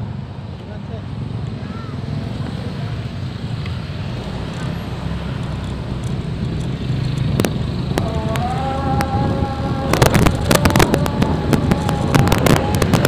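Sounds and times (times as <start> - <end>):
vehicle engine and road noise: 0.0 - 13.0
wind on microphone: 5.7 - 13.0
sharp cracks: 9.8 - 13.0.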